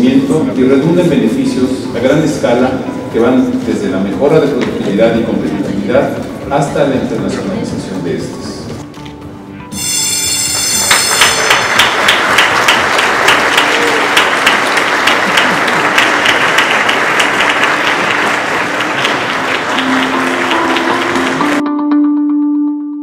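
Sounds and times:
ringing bell: 9.7 - 12.1
people applauding: 10.4 - 21.6.

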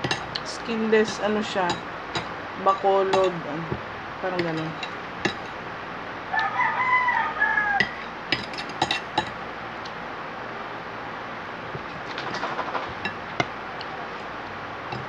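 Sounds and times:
rooster crowing: 6.3 - 8.2
cutlery clinking on plate: 7.8 - 9.4.

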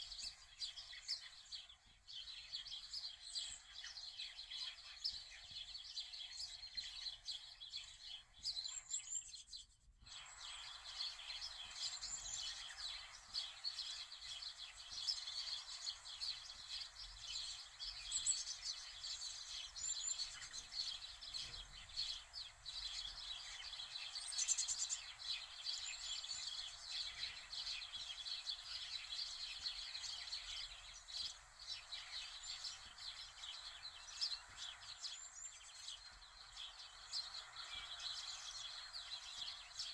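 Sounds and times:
birds chirping: 0.0 - 39.9
steady background hiss: 10.0 - 39.9.

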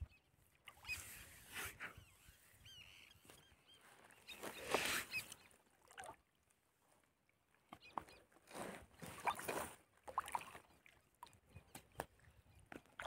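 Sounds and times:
water splashing and sloshing: 4.0 - 13.0.

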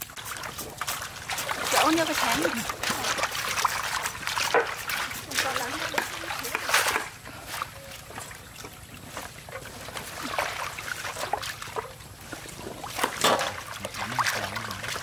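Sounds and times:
water splashing in metal basin: 0.0 - 15.0.

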